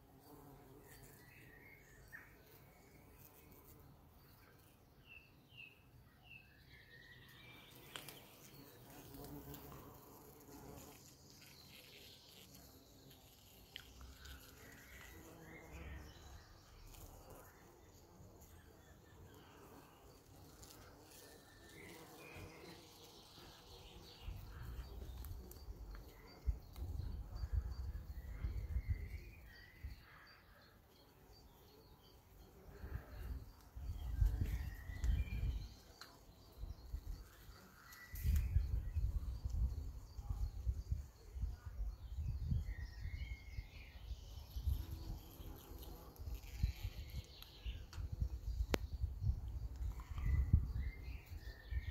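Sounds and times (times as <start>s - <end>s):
bumblebee buzzing: 7.8s - 28.0s, 44.4s - 47.3s
wind rumbling on microphone: 33.2s - 35.7s, 38.1s - 43.7s, 46.2s - 51.9s.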